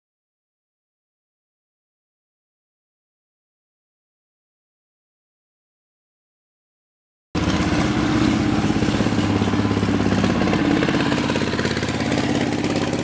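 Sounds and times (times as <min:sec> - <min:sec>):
boat engine running: 0:07.4 - 0:13.0.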